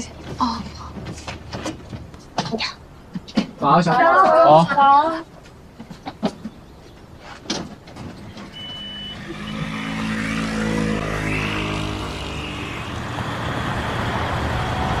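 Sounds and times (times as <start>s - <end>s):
minibus engine running: 7.8s - 15.0s
short high beep: 8.5s - 10.0s.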